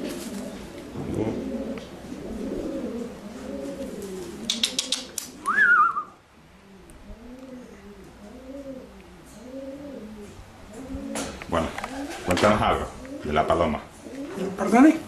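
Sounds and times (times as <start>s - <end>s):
pigeons cooing: 0.0s - 14.9s
sharp clicks: 4.5s - 5.6s
rising wavering whistle: 5.4s - 6.2s.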